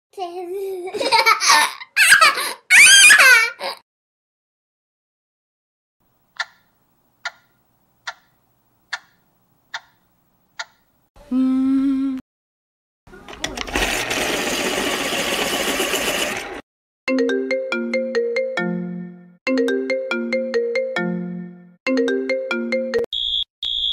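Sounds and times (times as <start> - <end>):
melodic phone ringtone: 17.1 - 23.1.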